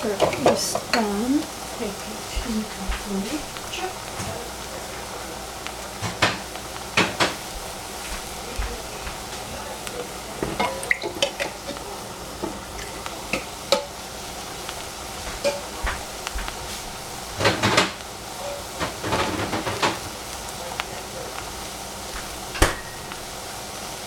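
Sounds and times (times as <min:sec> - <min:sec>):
vegetables sizzling in a saucepan: 0:00.0 - 0:24.0
sharp clicks and crackles: 0:14.6 - 0:18.2, 0:18.8 - 0:23.4.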